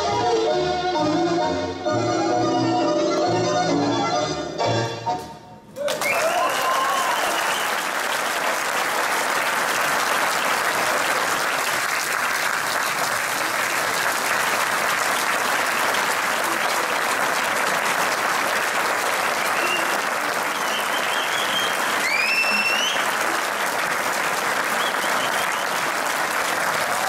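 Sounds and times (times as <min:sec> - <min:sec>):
audience applauding: 0:05.8 - 0:27.0
cheers: 0:05.8 - 0:27.0.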